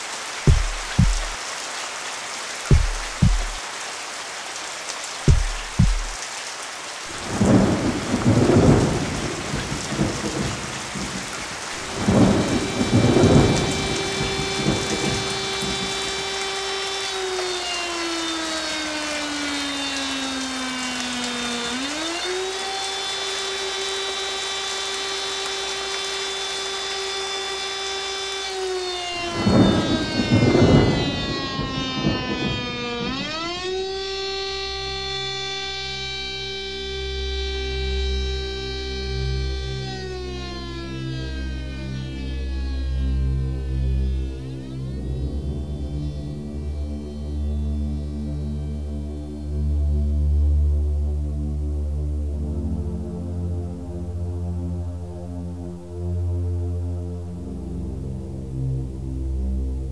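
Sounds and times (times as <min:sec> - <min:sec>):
heavy rain: 0:00.0 - 0:59.9
warning siren wailing: 0:00.4 - 0:01.4, 0:02.7 - 0:03.6, 0:07.1 - 0:50.6
rolling thunder: 0:07.2 - 0:15.8, 0:29.2 - 0:33.2.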